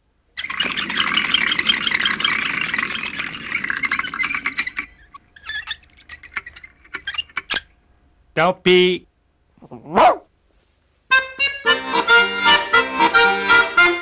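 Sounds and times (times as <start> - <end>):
spinning prize wheel ticking: 0.4 - 5.2.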